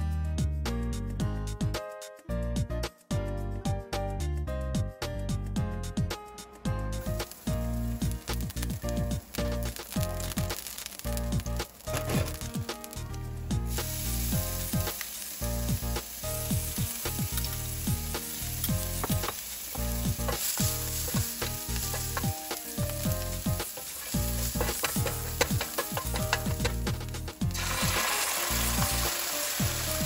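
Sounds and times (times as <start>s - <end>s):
garlic sizzling in hot oil: 7.0s - 30.0s
wooden spoon stirring pan: 18.7s - 27.2s.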